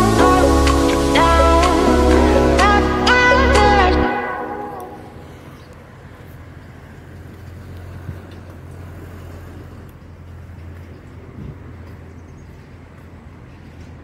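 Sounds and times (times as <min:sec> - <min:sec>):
steady low rumble: 0:00.0 - 0:06.2.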